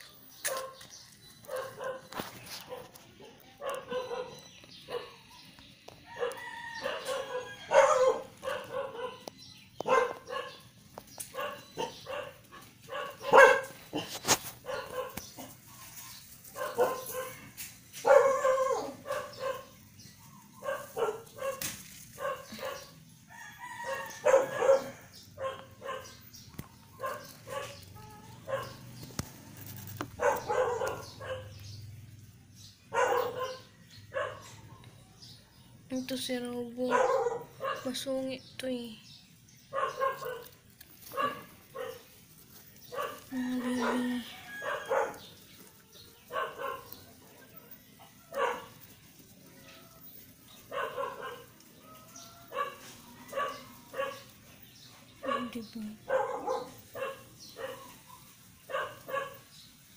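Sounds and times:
dog barking: 0.4 - 5.3, 6.1 - 15.6, 16.5 - 19.8, 20.6 - 22.9, 23.8 - 26.3, 26.9 - 29.0, 30.1 - 31.7, 32.9 - 34.8, 36.8 - 38.0, 39.6 - 42.2, 42.8 - 45.6, 46.2 - 47.5, 48.3 - 48.8, 50.6 - 54.4, 55.2 - 59.6.

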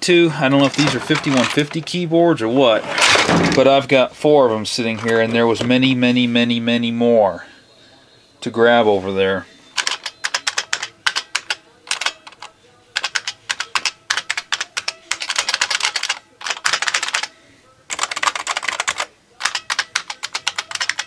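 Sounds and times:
clicky keyboard keystrokes: 9.8 - 17.3, 17.9 - 21.0.

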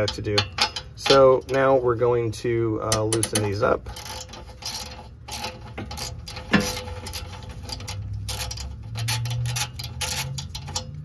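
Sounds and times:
metal clank: 0.0 - 1.8, 2.8 - 11.0
socket ratchet clicking: 2.9 - 11.0.

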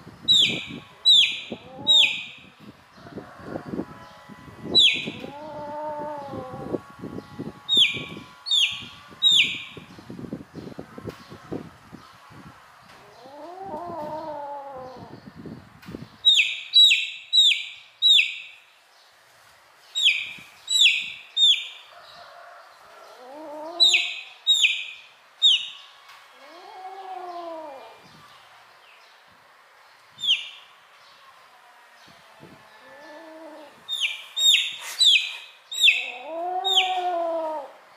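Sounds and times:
chick peeping: 33.9 - 36.0
kitten meowing: 35.8 - 37.7.

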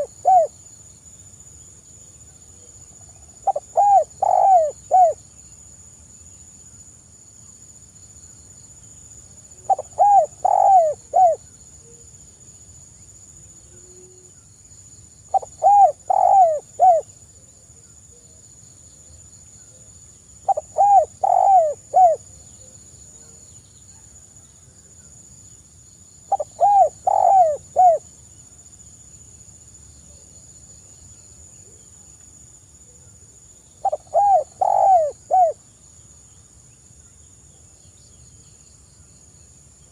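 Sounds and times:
dove cooing: 0.0 - 0.5, 3.4 - 5.2, 9.7 - 11.4, 15.3 - 17.1, 20.5 - 22.3, 26.3 - 28.0, 33.8 - 35.6.

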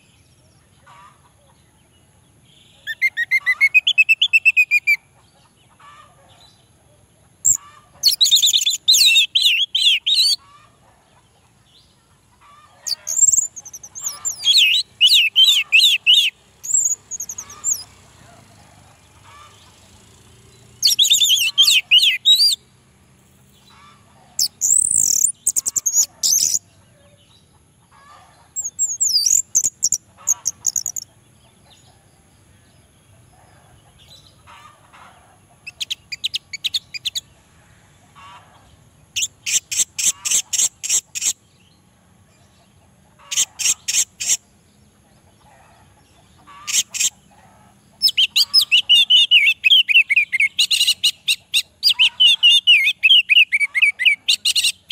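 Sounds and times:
bird singing high-pitched phrases: 2.5 - 5.0, 7.4 - 10.4, 12.8 - 17.9, 20.8 - 22.7, 24.4 - 26.6, 48.0 - 54.9.

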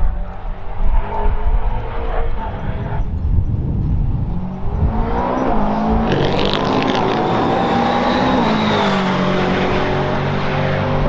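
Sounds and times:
race car engine accelerating: 0.4 - 11.0.

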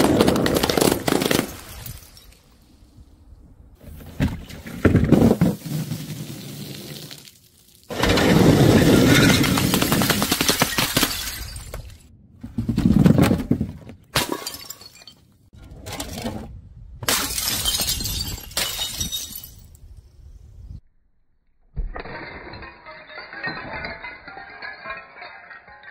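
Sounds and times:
objects smashing on impact: 7.9 - 15.2, 17.0 - 19.6, 21.8 - 25.9.

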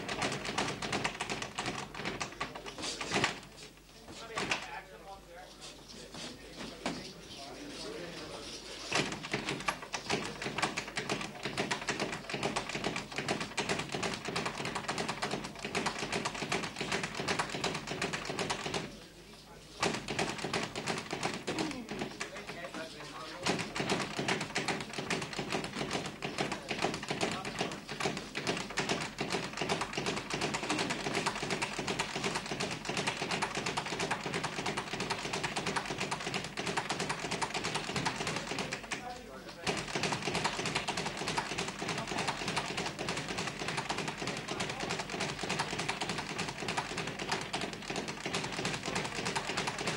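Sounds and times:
speed bag rattling: 0.0 - 3.4, 8.9 - 19.0, 19.8 - 49.9
gloves tapping and thudding: 0.0 - 3.5, 4.1 - 4.7, 8.9 - 18.9, 19.8 - 49.9
footwork on canvas: 0.0 - 4.8, 5.4 - 49.9.

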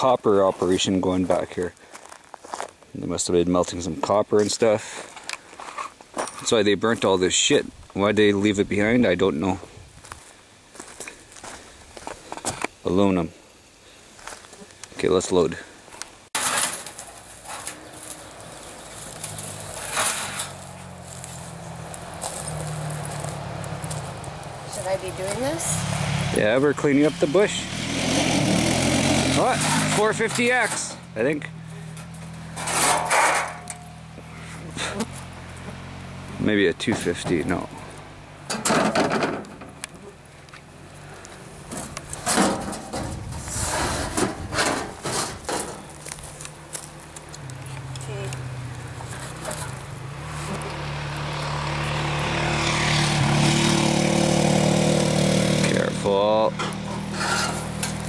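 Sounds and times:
metal clatter: 16.4 - 17.9, 19.2 - 20.7, 31.9 - 34.0, 38.5 - 39.8, 41.7 - 45.9, 56.5 - 58.0
sheet metal scraping and rattling: 16.4 - 18.2, 19.1 - 20.8, 28.3 - 31.0, 31.9 - 34.0, 38.5 - 39.8, 41.7 - 46.0, 56.5 - 58.0
steady engine hum: 17.8 - 38.6, 45.9 - 58.0
low engine hum: 46.2 - 58.0.

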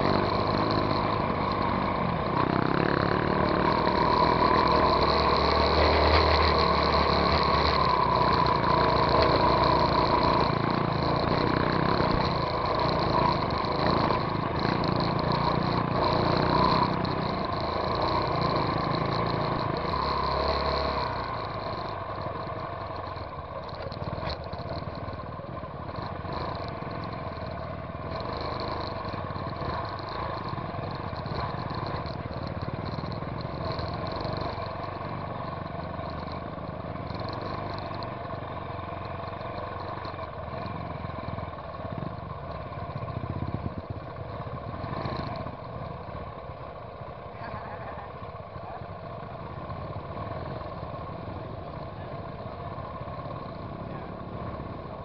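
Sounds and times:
dirt bike engine under throttle: 0.0 - 55.0.

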